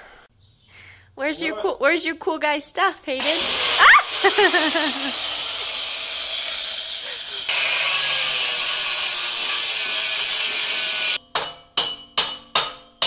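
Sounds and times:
die grinder cutting metal: 0:03.2 - 0:11.2.

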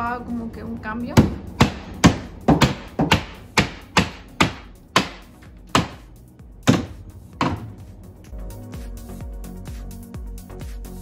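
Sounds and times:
hammer striking wood: 0:01.2 - 0:07.8.

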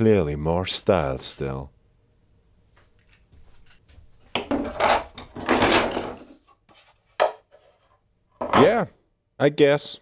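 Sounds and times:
wood scraping on wood: 0:03.5 - 0:08.6.

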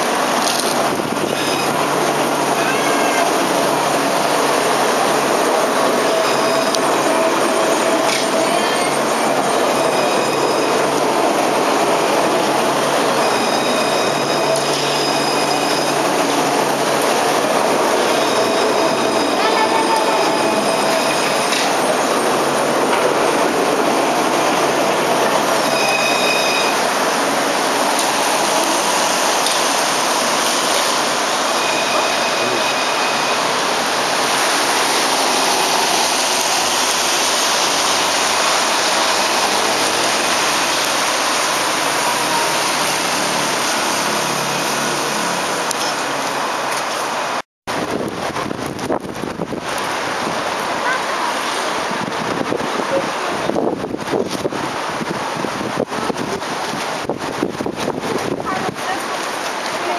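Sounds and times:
tram running on track: 0:00.0 - 0:59.9
high wheel squeals: 0:01.4 - 0:11.6, 0:12.4 - 0:22.5, 0:25.5 - 0:27.0, 0:31.4 - 0:40.4.

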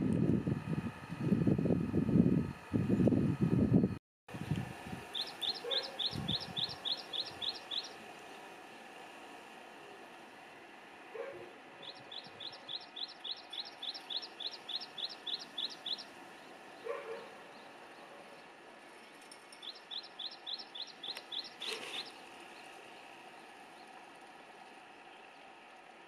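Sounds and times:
small bird singing: 0:04.4 - 0:08.9, 0:11.8 - 0:18.1, 0:19.6 - 0:24.0
short lower bird calls: 0:05.0 - 0:08.0, 0:11.8 - 0:17.4, 0:19.6 - 0:22.7.

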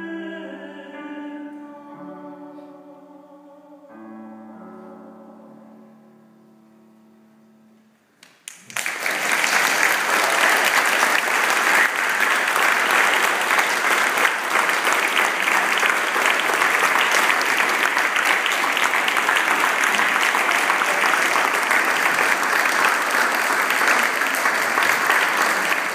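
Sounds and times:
audience applause: 0:08.2 - 0:25.9.

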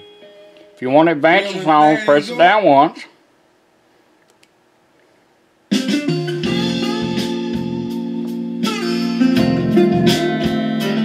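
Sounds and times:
acoustic blues song with guitar: 0:06.4 - 0:11.0.

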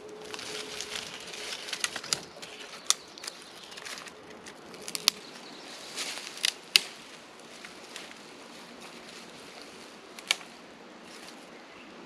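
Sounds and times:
dry twigs rustling and snapping: 0:00.0 - 0:11.5
sharp branch cracks: 0:00.2 - 0:05.3, 0:06.0 - 0:08.2, 0:10.2 - 0:11.4.

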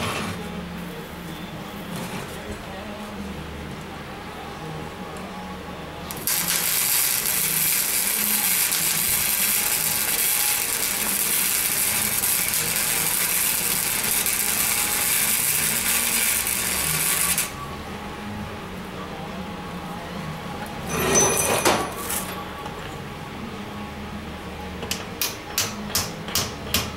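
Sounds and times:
welding arc crackling: 0:06.1 - 0:17.6.

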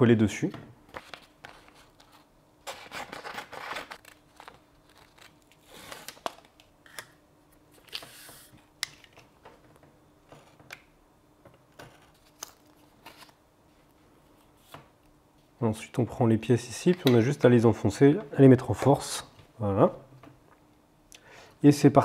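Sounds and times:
paper rustling: 0:00.9 - 0:06.5.

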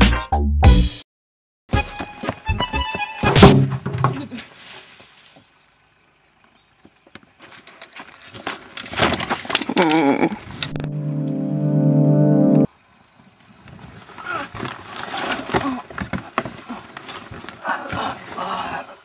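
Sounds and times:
music: 0:00.0 - 0:01.0, 0:01.7 - 0:03.6, 0:10.8 - 0:12.7
plastic bin crashing over: 0:03.2 - 0:04.4
held chord of tones: 0:10.8 - 0:12.7
wavering pitched sound: 0:10.8 - 0:12.7.

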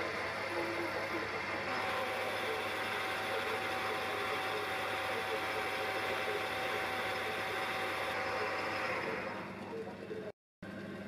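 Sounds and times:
lathe cutting metal: 0:00.0 - 0:09.7
thin steady whine: 0:00.0 - 0:10.8.

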